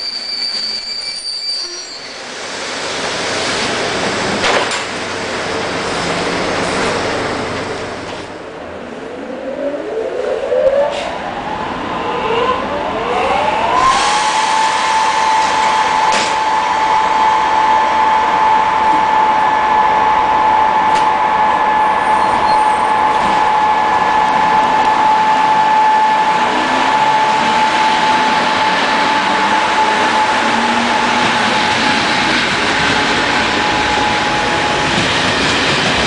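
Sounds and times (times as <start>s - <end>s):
train moving off: 0.0s - 36.0s
electric train equipment whine: 7.4s - 36.0s.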